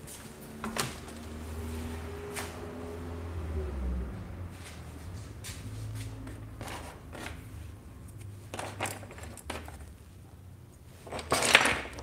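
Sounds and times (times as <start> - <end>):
tools knocking and rustling: 8.1 - 10.0.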